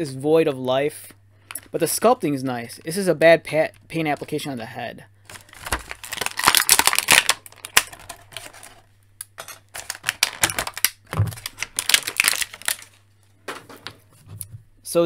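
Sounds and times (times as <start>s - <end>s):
plastic wrapping crinkling: 5.2s - 8.9s, 9.7s - 13.3s.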